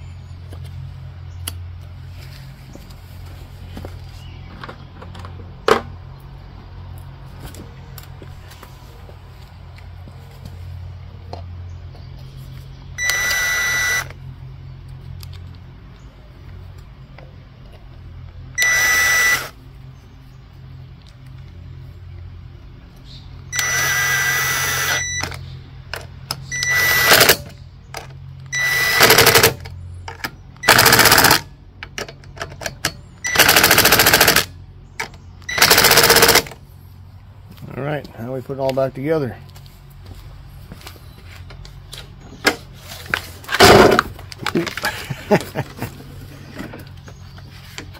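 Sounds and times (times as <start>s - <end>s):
impact driver hammering: 28.6s - 29.6s, 30.6s - 31.4s, 43.6s - 44.1s.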